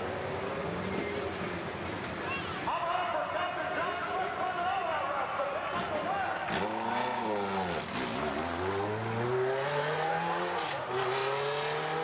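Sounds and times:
engine accelerating: 0:06.5 - 0:12.0.

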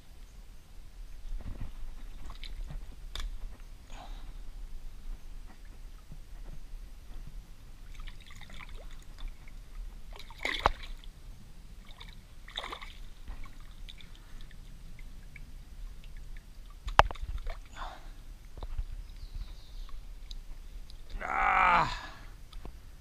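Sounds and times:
water sloshing and trickling: 0:01.2 - 0:22.8
water splashes: 0:07.8 - 0:11.2, 0:11.8 - 0:18.6.

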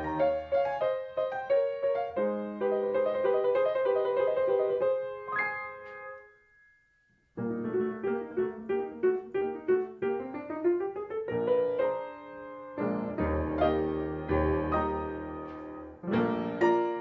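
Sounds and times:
solo piano: 0:00.0 - 0:06.7, 0:07.3 - 0:17.0.

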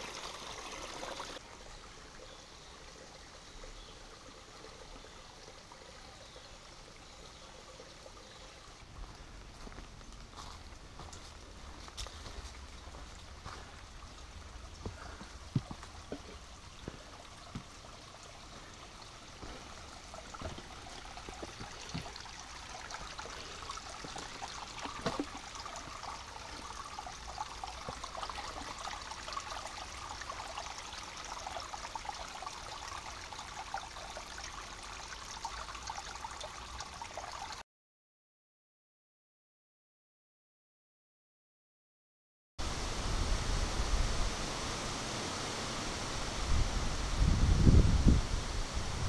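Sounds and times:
stream trickling among rocks: 0:00.0 - 0:37.6
footsteps on rocky trail: 0:09.0 - 0:13.8, 0:14.8 - 0:17.6.

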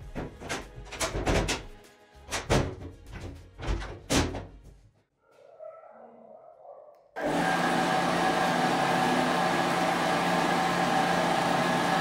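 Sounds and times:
background music: 0:00.0 - 0:04.2.

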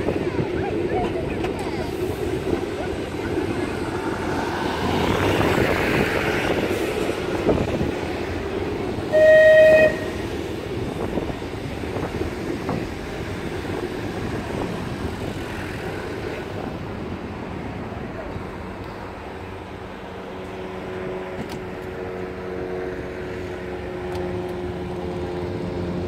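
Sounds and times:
wind noise: 0:00.0 - 0:18.6
tram rumbling along street: 0:00.0 - 0:26.0
tram horn blast: 0:08.9 - 0:10.4.

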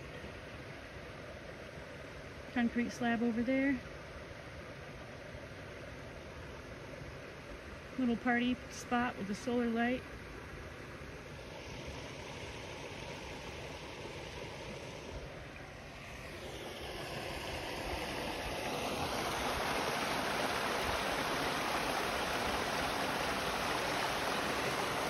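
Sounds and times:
waterfall splashing into pond: 0:11.8 - 0:25.0.

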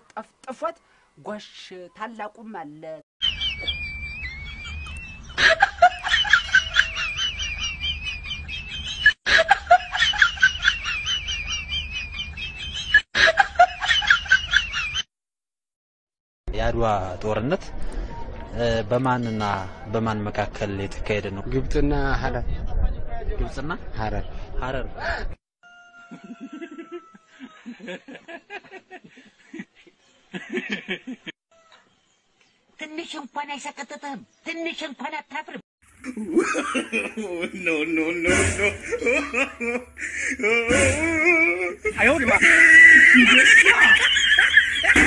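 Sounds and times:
wavering whistly tone: 0:03.2 - 0:05.5
chirpy comedy sound effect: 0:03.2 - 0:09.2
person laughing: 0:04.6 - 0:15.0, 0:36.0 - 0:45.0.

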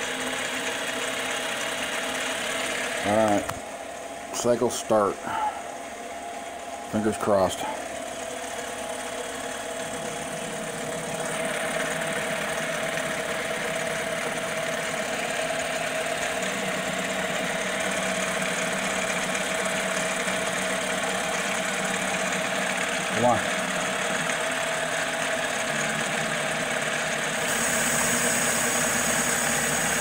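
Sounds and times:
lathe drive whine: 0:00.0 - 0:30.0.

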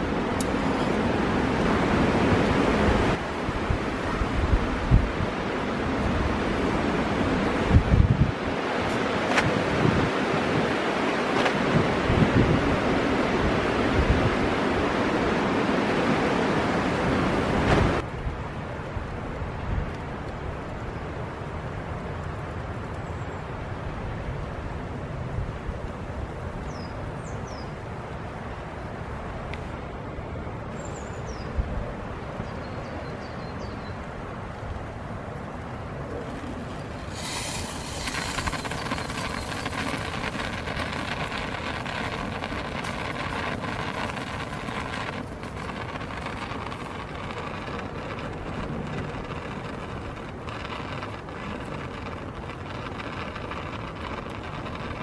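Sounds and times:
wind rumble: 0:00.0 - 0:22.9, 0:34.1 - 0:55.0
steam hissing from pot lid: 0:36.9 - 0:55.0.

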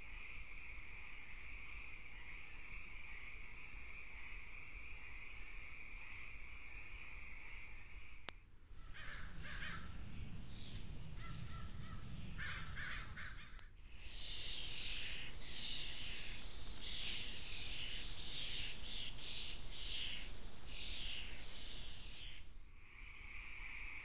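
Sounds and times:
birds harsh calls: 0:08.8 - 0:22.5.

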